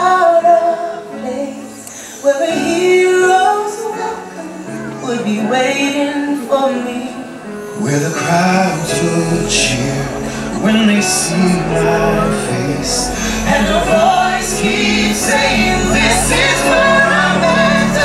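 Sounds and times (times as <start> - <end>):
music with singing: 0.0 - 18.0
deep bass note: 9.2 - 18.0.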